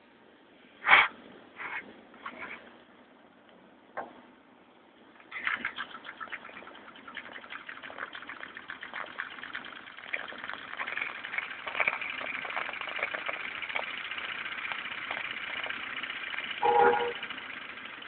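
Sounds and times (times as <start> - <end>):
model steam engine running: 5.3 - 18.0.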